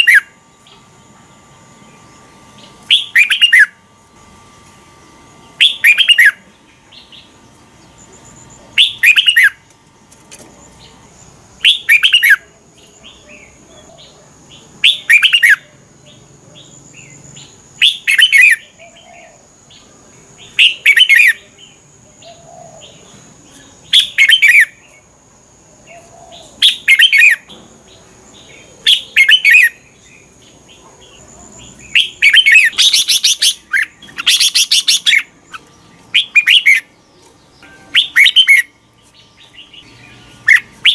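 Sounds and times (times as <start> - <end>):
bird singing whistled phrases: 0.0 - 0.4, 2.9 - 3.8, 5.6 - 6.4, 8.8 - 9.6, 11.6 - 12.5, 14.8 - 15.7, 31.9 - 36.9, 37.6 - 38.7.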